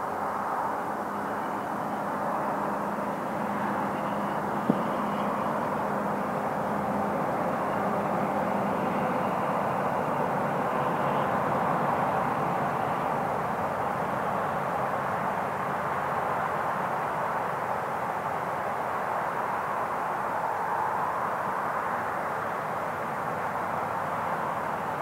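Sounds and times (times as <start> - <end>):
distant freight train rumble: 0.0 - 19.9.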